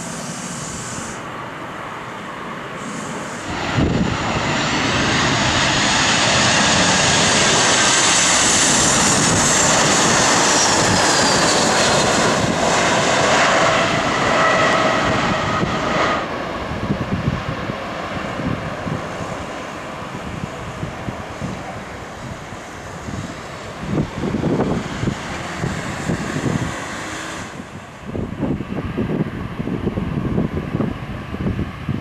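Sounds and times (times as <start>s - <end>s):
jet engine roar and whine: 0.0s - 32.0s.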